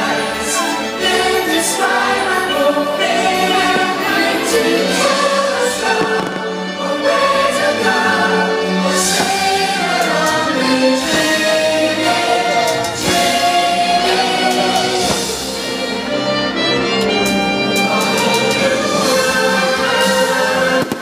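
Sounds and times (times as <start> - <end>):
choir singing held notes: 0.0 - 21.0
orchestral music: 0.0 - 21.0
firework bangs: 5.6 - 6.6, 14.6 - 15.5, 20.7 - 21.0.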